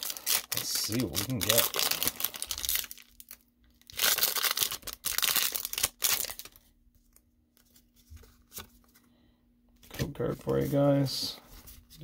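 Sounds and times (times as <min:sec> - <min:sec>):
foil wrapper crinkling and tearing: 0:00.0 - 0:06.7.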